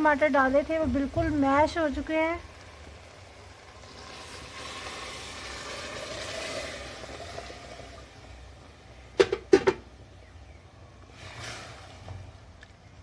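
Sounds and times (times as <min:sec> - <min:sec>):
water hissing into hot pot: 0:00.0 - 0:09.2, 0:11.0 - 0:12.5
sharp knocks: 0:09.2 - 0:09.8.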